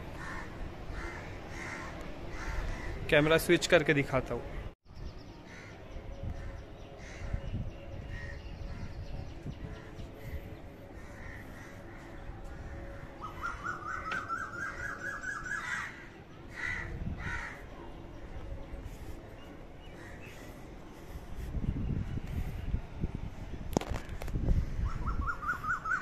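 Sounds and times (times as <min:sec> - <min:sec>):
crows cawing: 0:00.2 - 0:03.1, 0:06.4 - 0:07.3, 0:11.0 - 0:17.7.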